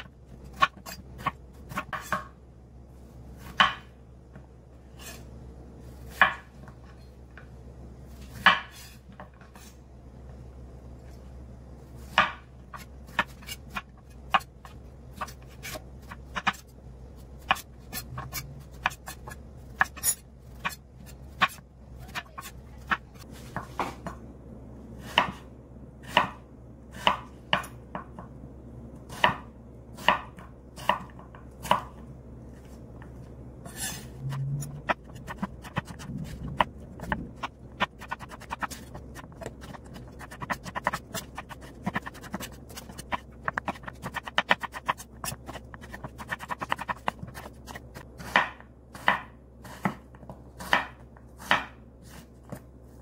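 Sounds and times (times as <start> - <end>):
knife chopping on wooden board: 0.0 - 2.3, 3.4 - 3.9, 6.1 - 6.5, 8.3 - 9.4, 12.1 - 14.5, 25.0 - 25.4, 26.0 - 26.4, 27.0 - 28.2, 29.1 - 32.0, 33.7 - 51.8.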